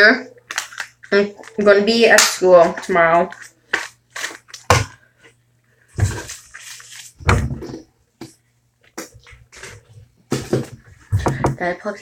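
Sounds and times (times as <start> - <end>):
rustling and bumping on desk: 6.0 - 6.4, 7.2 - 8.4, 9.5 - 11.6.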